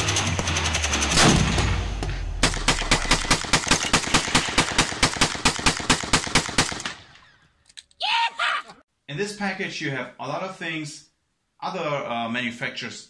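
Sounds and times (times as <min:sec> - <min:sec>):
rapid gunshots: 0:00.0 - 0:07.1.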